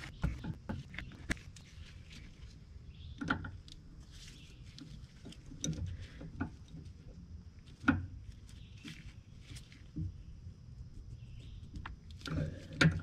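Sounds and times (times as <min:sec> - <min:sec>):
pipe fittings clicking and knocking: 0:04.8 - 0:07.0.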